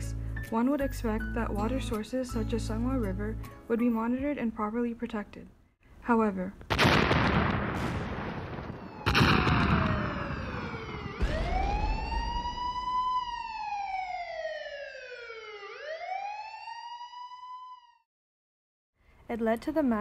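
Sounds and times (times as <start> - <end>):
heavy explosions: 6.7 - 13.6
wailing emergency siren: 8.6 - 18.1.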